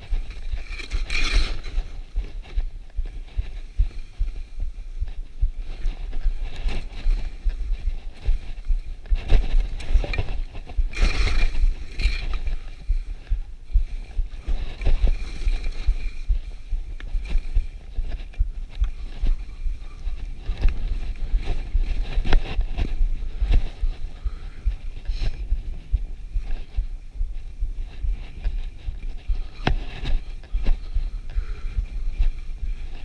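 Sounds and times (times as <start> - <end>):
wind buffeting microphone: 0.0 - 33.0.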